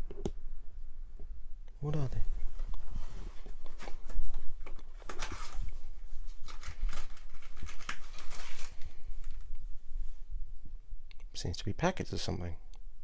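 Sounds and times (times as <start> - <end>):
paper sachets rustling: 3.8 - 9.5.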